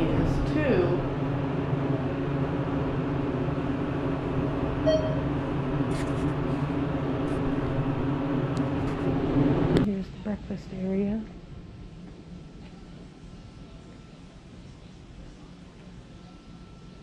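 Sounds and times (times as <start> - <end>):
elevator hum: 0.0 - 14.6
short electronic beep: 4.8 - 5.4.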